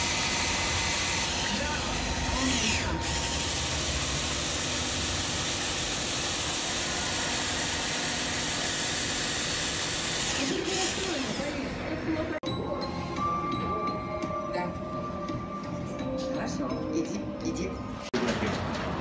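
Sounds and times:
cordless drill boring through glass: 0.0 - 11.6.

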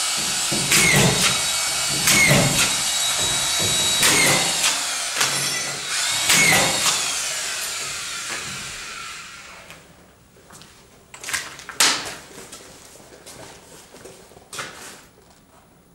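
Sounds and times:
screw gun motor whine: 0.0 - 9.7.

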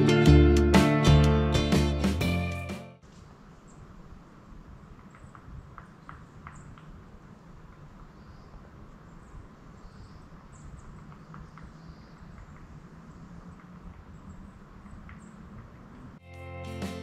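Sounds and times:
wind rumble on microphone: 3.8 - 16.2
distant bird chirps: 8.0 - 16.1.

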